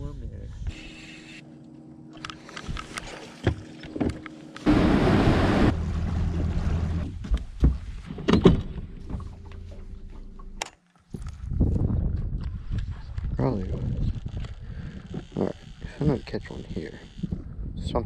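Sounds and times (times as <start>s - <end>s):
electric trolling motor humming: 0.6s - 7.0s, 14.2s - 17.6s.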